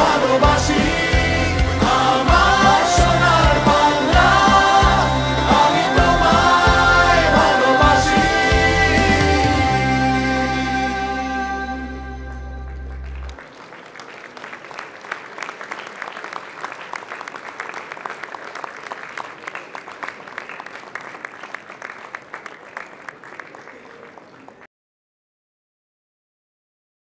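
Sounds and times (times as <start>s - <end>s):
music: 0.0s - 13.3s
audience applause: 12.7s - 24.7s.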